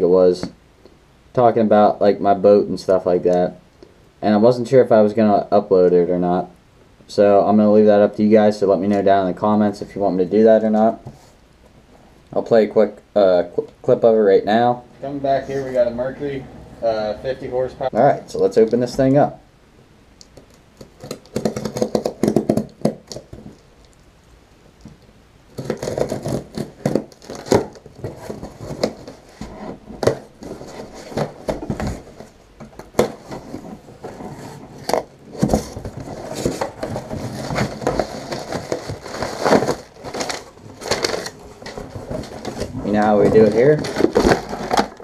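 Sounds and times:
cardboard scraping and rustling: 0:25.6 - 0:45.0.

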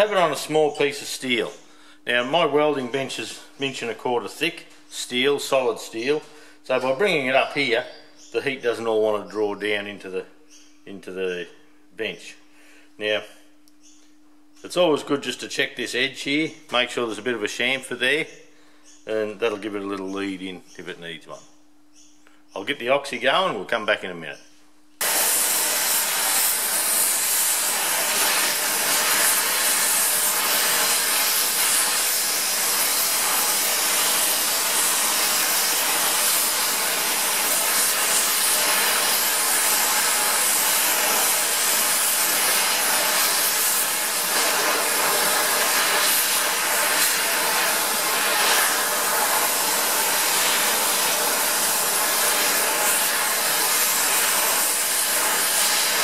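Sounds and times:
torch flame hissing: 0:00.0 - 0:00.7, 0:25.0 - 0:56.0.

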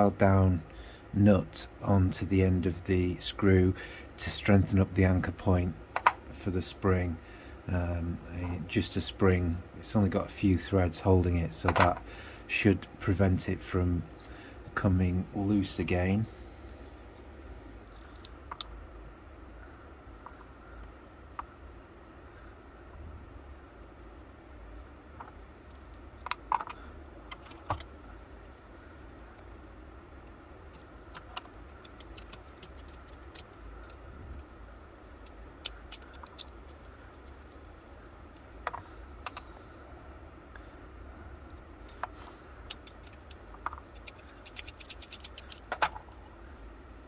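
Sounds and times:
small metal clicks and clinks: 0:42.7 - 0:46.1.

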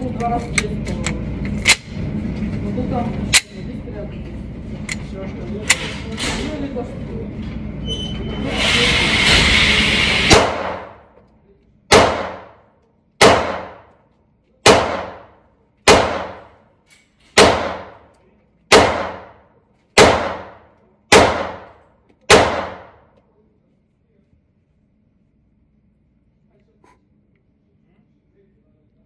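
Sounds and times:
loud rushing noise: 0:08.4 - 0:10.7
pistol shots in indoor range: 0:10.2 - 0:11.2, 0:11.8 - 0:23.2.

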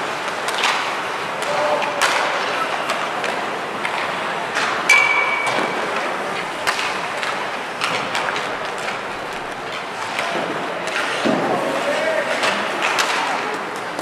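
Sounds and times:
hockey sticks clacking on pucks: 0:00.0 - 0:14.0
rink hubbub: 0:00.0 - 0:14.0
metallic ping: 0:04.9 - 0:05.6.

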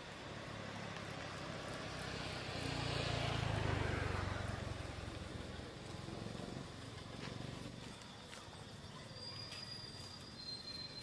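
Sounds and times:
vehicle engine passing by: 0:00.0 - 0:08.0.

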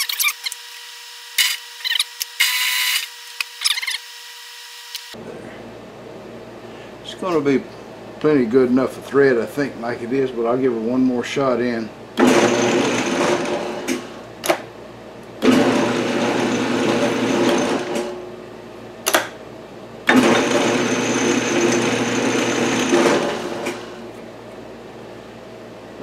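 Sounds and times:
metal lathe motor running: 0:12.2 - 0:14.3, 0:15.4 - 0:18.2, 0:20.0 - 0:24.1.

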